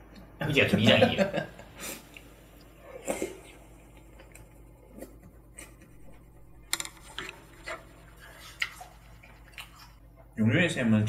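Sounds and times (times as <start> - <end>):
chewing: 2.0 - 6.2, 7.0 - 10.2.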